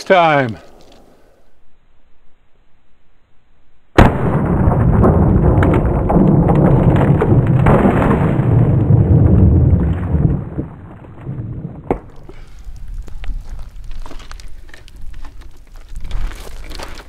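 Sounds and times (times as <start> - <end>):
gunshot deep rumbling boom: 4.0 - 12.2.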